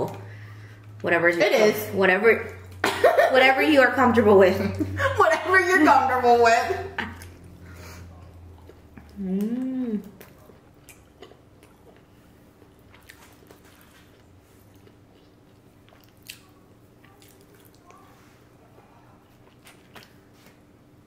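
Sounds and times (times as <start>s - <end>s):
faint steady hum: 0.0s - 21.0s
faint chewing: 7.0s - 20.6s.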